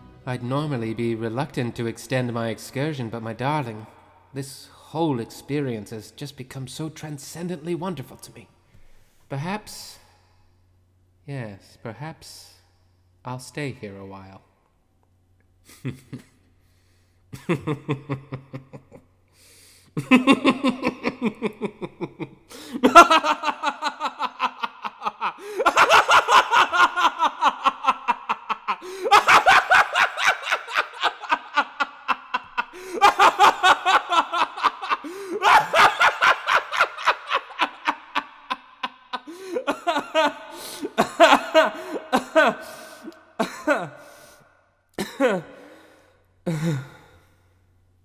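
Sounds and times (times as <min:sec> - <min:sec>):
man laughing manically: 0:15.7 - 0:16.4, 0:17.4 - 0:19.2, 0:20.0 - 0:44.1.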